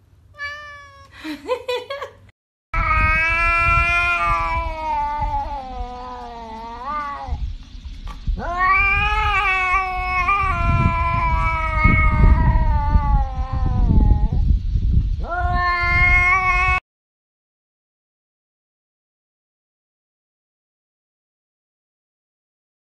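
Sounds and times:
cat yowling: 0.4s - 1.2s, 2.8s - 7.4s, 8.4s - 14.4s, 15.2s - 16.8s
low rumble: 2.8s - 16.5s.

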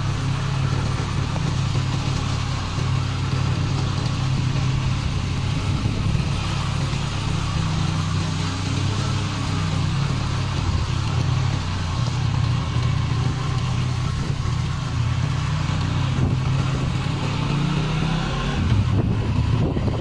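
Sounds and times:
motorcycle engine running: 0.0s - 20.0s
tyre noise on muddy road: 0.0s - 20.0s
wind rushing: 3.5s - 20.0s.

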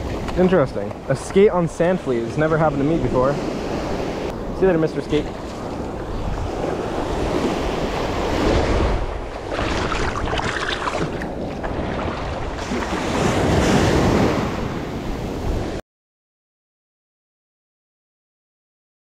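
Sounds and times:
wind buffeting microphone: 2.7s - 15.8s
small waves breaking: 3.1s - 15.8s.

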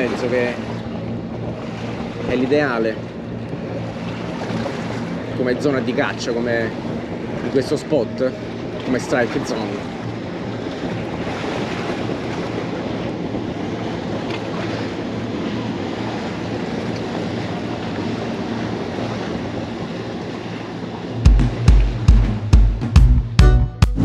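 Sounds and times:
sea waves washing against rocks: 0.0s - 3.0s, 3.8s - 22.4s
wind on microphone: 0.0s - 22.8s
motorboat engine drone: 0.0s - 24.0s.

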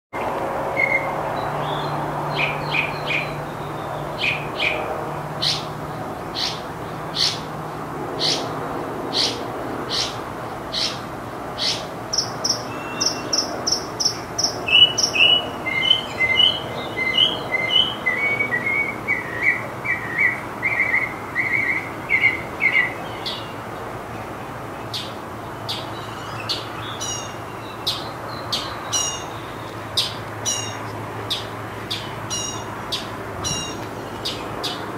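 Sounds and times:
mockingbird singing: 5.4s - 5.7s, 6.3s - 7.5s, 8.2s - 8.5s, 9.1s - 11.0s, 11.6s - 23.6s, 25.7s - 34.9s.

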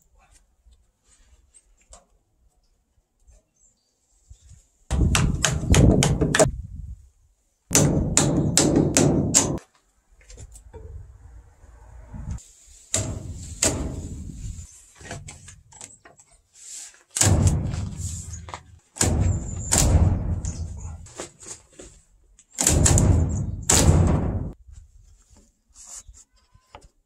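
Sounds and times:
wooden mallet striking timber frame: 4.9s - 6.5s, 7.7s - 9.6s, 12.9s - 14.3s, 17.2s - 21.1s, 22.6s - 24.6s
low boom from frame: 19.0s - 21.1s, 22.7s - 24.6s.

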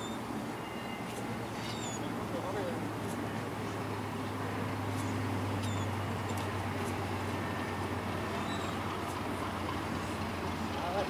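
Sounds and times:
distant diesel locomotives humming: 0.0s - 11.0s
faint bird chirps: 1.6s - 2.1s, 5.0s - 6.0s, 8.3s - 8.8s.

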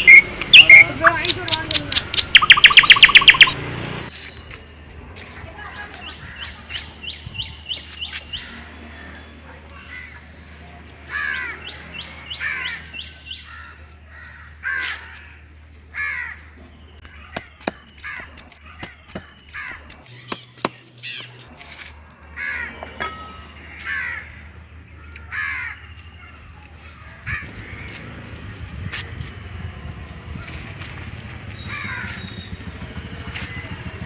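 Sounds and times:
crows cawing: 11.1s - 16.6s, 17.2s - 19.9s, 22.3s - 22.8s, 23.5s - 26.3s, 26.9s - 28.1s, 31.7s - 32.2s
cleaver chopping on wooden block: 17.3s - 20.8s.

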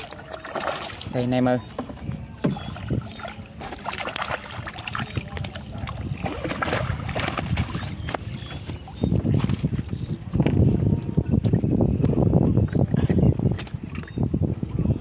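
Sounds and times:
fish splashing in water: 0.0s - 1.2s, 2.4s - 9.9s.

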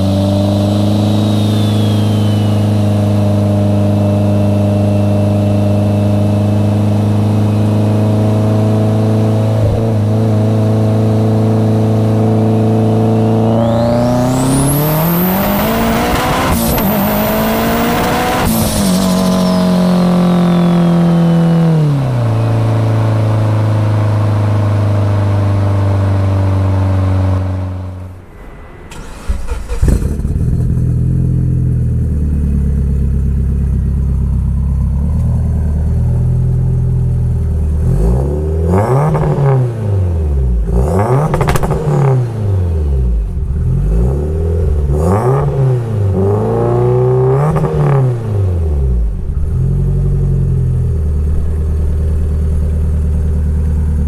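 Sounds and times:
turbo whine: 0.0s - 6.5s, 12.0s - 23.6s
car engine accelerating in cabin: 0.0s - 54.0s
car exhaust idling burble: 49.1s - 54.0s.

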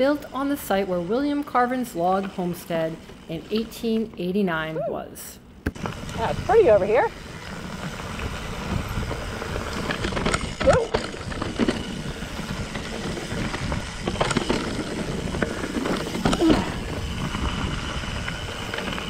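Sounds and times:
bike rattling over bumps: 5.7s - 19.0s
bike tyres on dirt and leaves: 5.7s - 19.0s.

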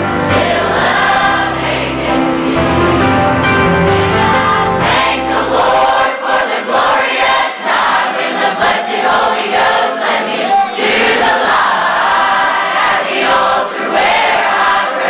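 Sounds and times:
low musical accompaniment: 0.0s - 6.0s
choir singing gospel: 0.0s - 15.0s.

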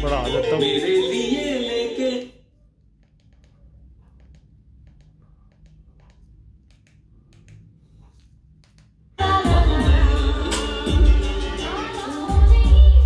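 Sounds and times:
small clicks and taps: 3.0s - 9.0s.

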